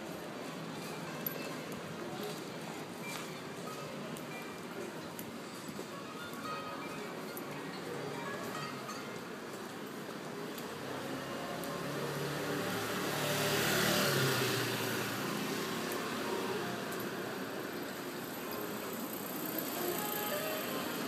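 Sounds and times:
street traffic noise: 0.0 - 21.0
motor scooter passing: 11.1 - 17.0.

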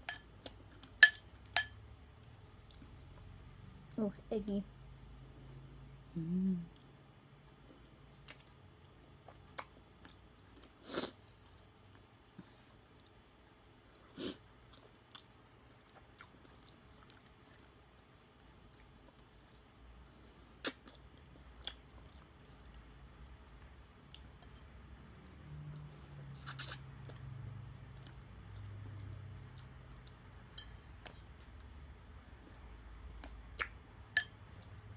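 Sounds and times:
chewing and mouth sounds: 6.7 - 10.8, 11.4 - 34.9.

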